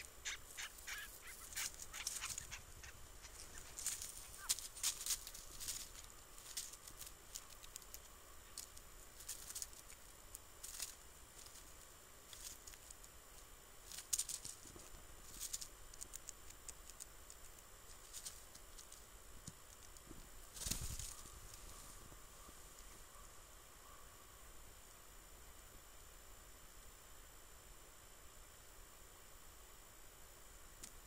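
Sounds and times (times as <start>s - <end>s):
rustles in dry leaves: 0.0s - 16.1s, 17.8s - 19.2s, 20.3s - 23.0s.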